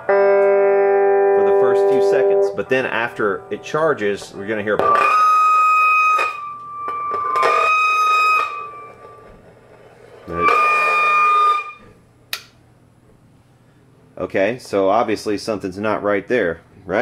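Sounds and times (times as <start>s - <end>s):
electric guitar notes ringing: 0.0s - 9.5s, 10.3s - 11.9s
sharp click: 12.3s - 12.6s.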